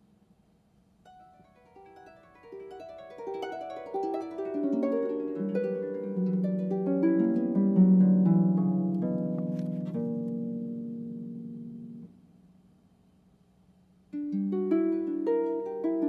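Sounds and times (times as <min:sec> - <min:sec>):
harp plucked notes: 0:01.1 - 0:12.2.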